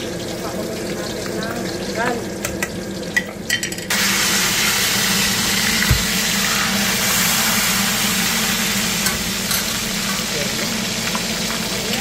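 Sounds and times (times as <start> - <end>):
fish sizzling in oil: 0.0 - 12.0
low thump: 5.8 - 6.1.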